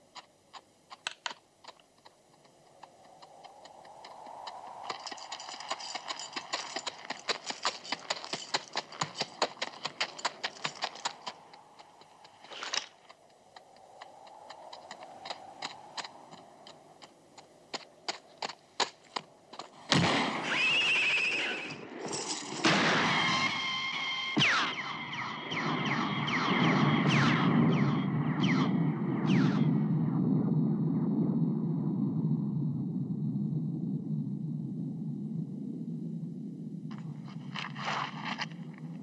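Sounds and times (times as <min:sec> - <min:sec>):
horse hooves clopping on rocky ground: 0:00.1 - 0:22.9, 0:36.9 - 0:39.0.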